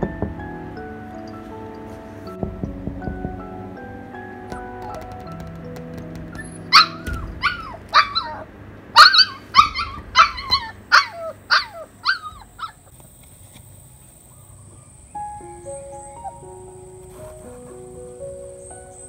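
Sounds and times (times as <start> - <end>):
puppy whining and yelping: 6.3 - 12.9.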